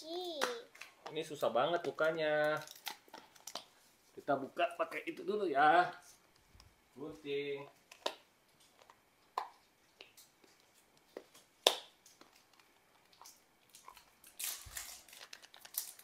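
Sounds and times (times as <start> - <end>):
plastic package clicks and crackles: 11.4 - 16.0
package rustle: 12.1 - 16.0.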